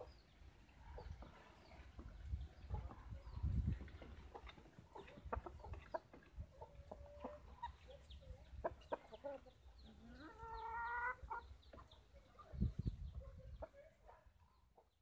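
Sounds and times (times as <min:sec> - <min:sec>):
chickens clucking: 0:00.0 - 0:14.1
chicken drawn-out call: 0:09.9 - 0:11.5.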